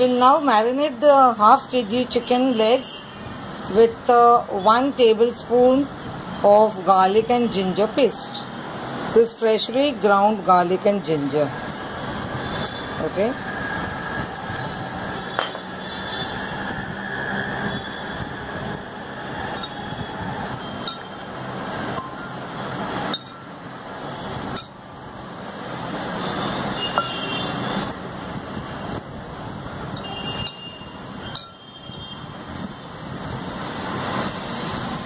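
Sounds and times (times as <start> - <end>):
road traffic noise: 0.0 - 35.0.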